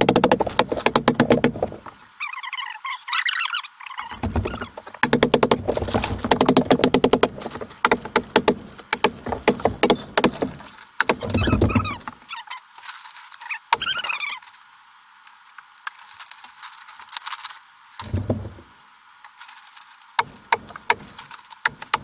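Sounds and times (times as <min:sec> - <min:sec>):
squeaky high-pitched chirps: 0:02.2 - 0:04.7, 0:11.3 - 0:12.6, 0:13.4 - 0:14.4.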